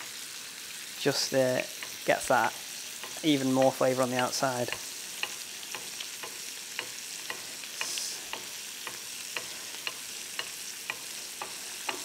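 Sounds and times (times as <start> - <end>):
meat sizzling in butter: 0.0 - 12.0
spoon clicking against pan: 1.7 - 2.0, 3.0 - 12.0.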